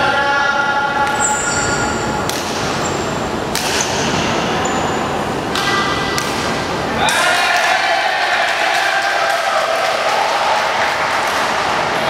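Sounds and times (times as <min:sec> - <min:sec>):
sneakers squeaking on wooden floor: 0:01.1 - 0:02.1
rackets hitting shuttlecock: 0:02.2 - 0:02.8, 0:03.4 - 0:04.3, 0:05.5 - 0:07.7.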